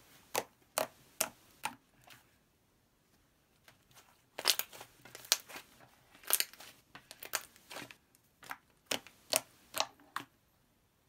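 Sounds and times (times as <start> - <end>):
slime crackling and popping: 4.3 - 10.0.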